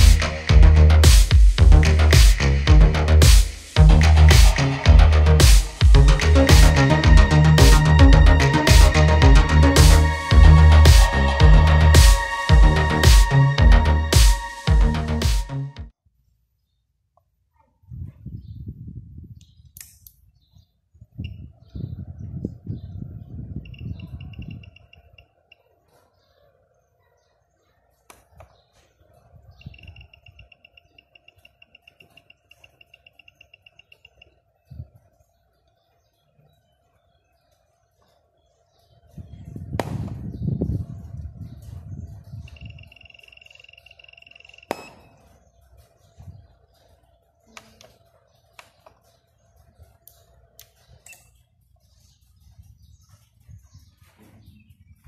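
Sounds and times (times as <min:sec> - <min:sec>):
studio flash beeping: 0:42.4 - 0:45.3.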